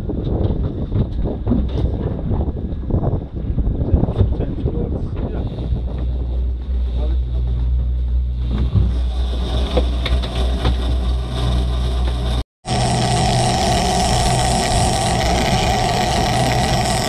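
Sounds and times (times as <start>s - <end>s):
wind noise: 0.0s - 10.8s
outboard motorboat engine running: 5.4s - 17.0s.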